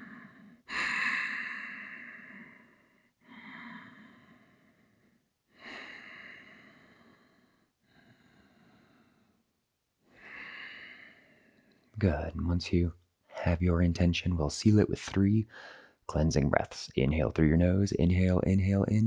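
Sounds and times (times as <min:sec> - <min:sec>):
breathing through the nose: 0:00.0 - 0:09.4, 0:10.2 - 0:11.7, 0:15.4 - 0:16.0.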